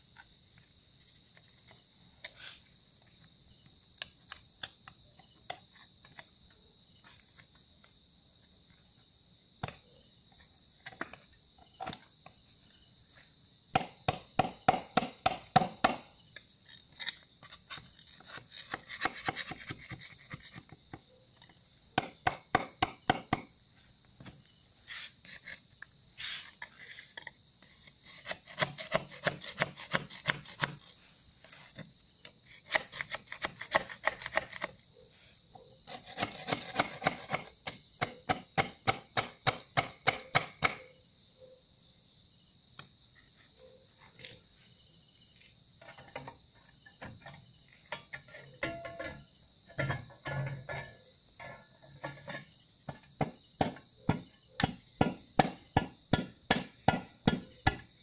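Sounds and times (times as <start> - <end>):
crickets droning: 0.0 - 58.0
hand tool scraping ground: 0.9 - 2.8, 16.6 - 20.8, 23.8 - 37.8, 44.0 - 55.9.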